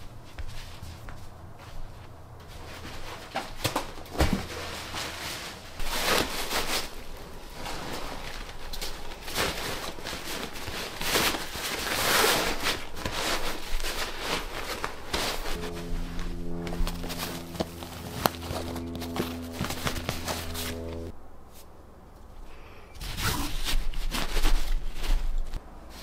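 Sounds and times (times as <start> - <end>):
nylon backpack rustling: 2.5 - 21.1.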